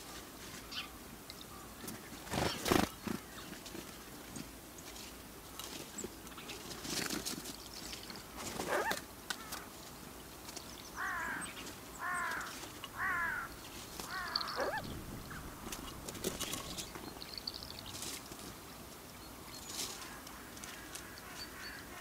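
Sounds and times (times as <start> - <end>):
small birds chirping: 7.3 - 22.0
crow cawing: 11.0 - 16.0.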